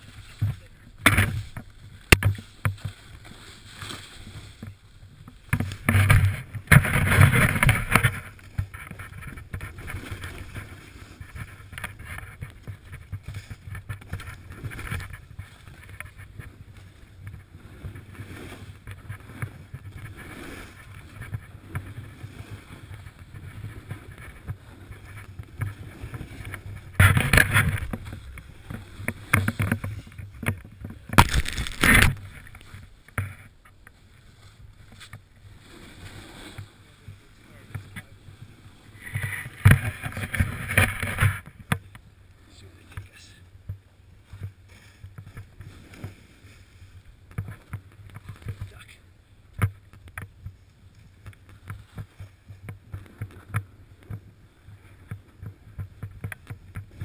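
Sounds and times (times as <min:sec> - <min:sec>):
snowboard swishing through snow: 0:35.4 - 0:37.6.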